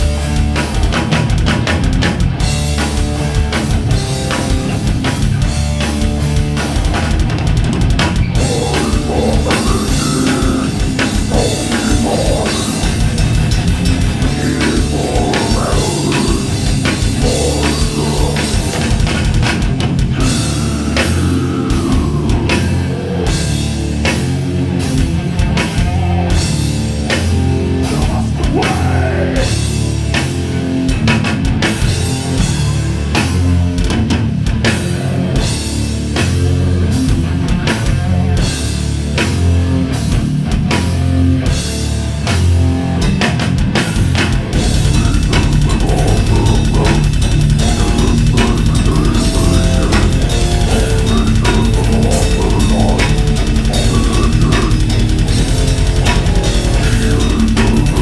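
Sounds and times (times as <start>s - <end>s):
synth bass: 0.0s - 31.1s, 44.0s - 58.0s
distorted electric guitars: 0.0s - 58.0s
fast drum kit playing: 0.0s - 58.0s.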